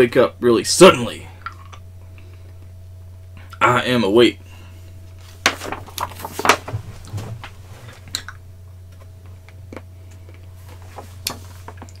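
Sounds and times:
steady low hum: 0.0s - 12.0s
paper pages rustling: 5.2s - 8.1s, 10.6s - 12.0s.

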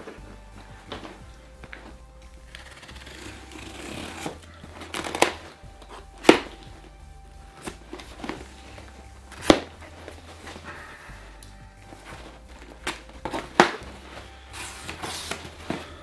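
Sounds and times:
knife cutting packing tape: 2.5s - 5.5s.

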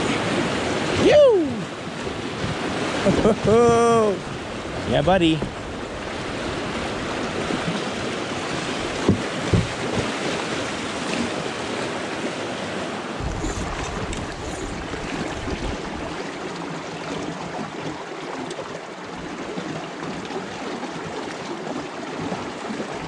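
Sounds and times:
river water rushing and splashing: 0.0s - 23.0s
short thumps: 9.0s - 10.2s
wind buffeting microphone: 13.2s - 16.2s.

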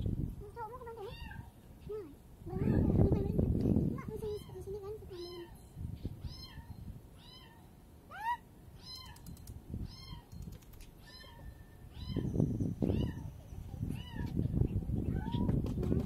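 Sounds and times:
cat meowing: 1.0s - 1.5s, 4.2s - 5.6s, 6.2s - 9.2s, 11.0s - 12.3s, 12.9s - 13.3s.

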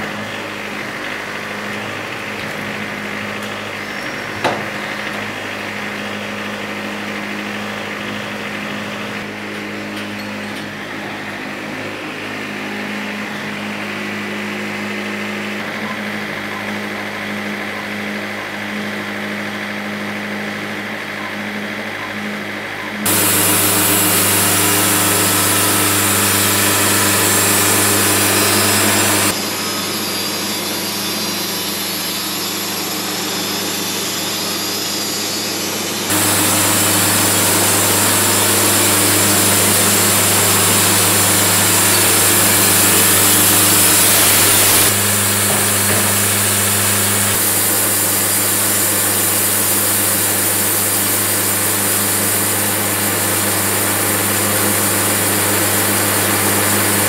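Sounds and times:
bandsaw mill sawing log: 23.0s - 30.0s, 36.0s - 57.0s.

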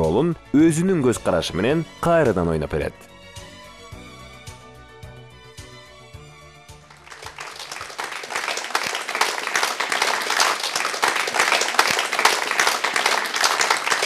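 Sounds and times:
audience applauding: 6.9s - 14.0s.

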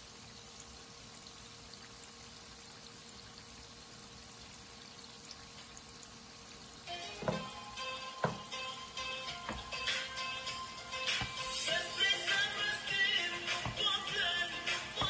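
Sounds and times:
music with a beat: 6.9s - 15.0s.

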